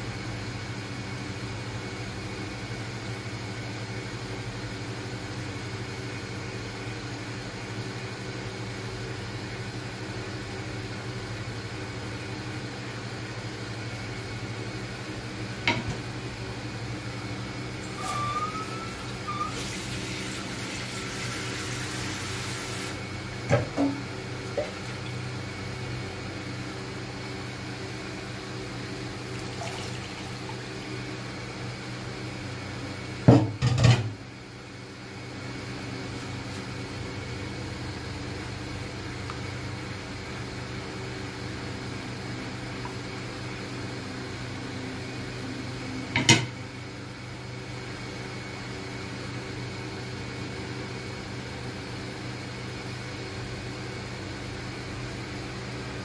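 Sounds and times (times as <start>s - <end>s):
appliance mechanical hum: 0.0s - 56.0s.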